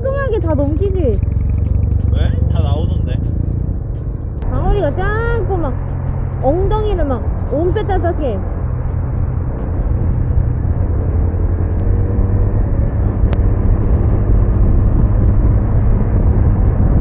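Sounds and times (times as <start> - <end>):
motorcycle engine: 0.0 - 17.0
passing traffic: 0.0 - 17.0
wind rushing over microphone: 0.0 - 17.0.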